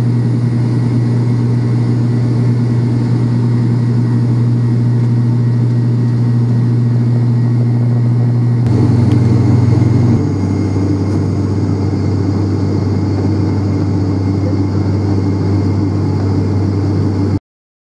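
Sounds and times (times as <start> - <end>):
turboprop cabin drone: 0.0 - 17.4.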